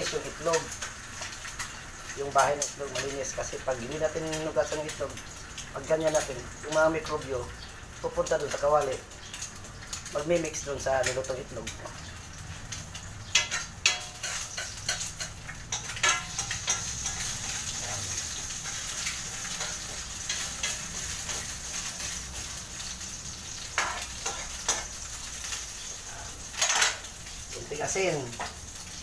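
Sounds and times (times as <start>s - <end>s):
egg sizzling in frying pan: 0.0s - 29.0s
metal ladle scraping pan: 13.3s - 22.0s, 23.7s - 25.0s.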